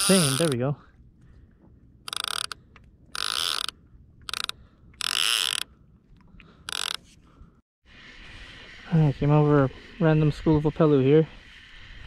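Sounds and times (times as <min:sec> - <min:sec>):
fishing reel clicker ratcheting: 0:00.0 - 0:00.6, 0:02.1 - 0:05.8, 0:06.6 - 0:07.0.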